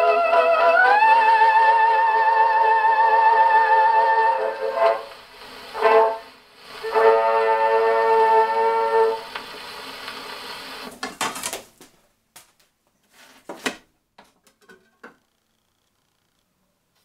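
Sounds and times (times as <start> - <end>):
brass chord from gramophone: 0.0 - 9.5
record surface hiss: 0.0 - 17.0
needle scraping record: 8.2 - 11.8, 13.0 - 13.8
clicks and knocks of handling: 13.5 - 15.2.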